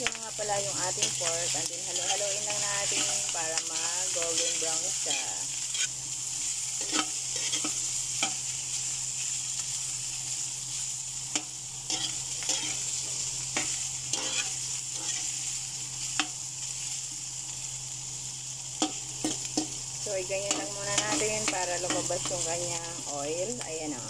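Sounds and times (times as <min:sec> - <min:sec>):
pork sizzling in a wok: 0:00.0 - 0:24.0
metal spatula scraping a pan: 0:01.0 - 0:06.0, 0:06.8 - 0:08.4, 0:11.9 - 0:13.0, 0:13.6 - 0:15.4.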